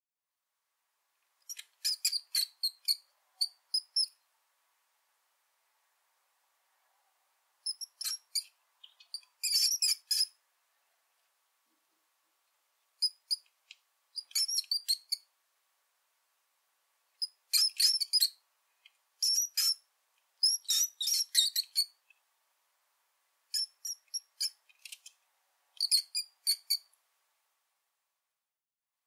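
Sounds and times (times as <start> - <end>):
mouse squeaking: 1.4 - 4.2, 7.6 - 10.4, 13.0 - 13.5, 14.2 - 15.3, 17.2 - 18.4, 19.2 - 22.0, 23.5 - 25.1, 25.8 - 26.9.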